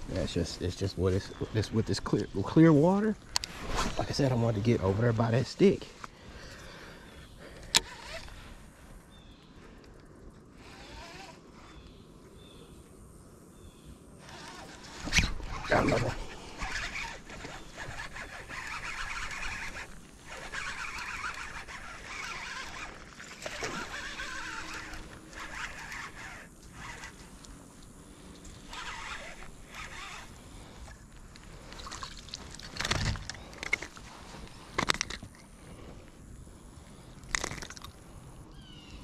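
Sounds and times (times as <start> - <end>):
fishing reel gears whirring: 6.4 - 9.4, 10.6 - 12.7, 14.2 - 39.0.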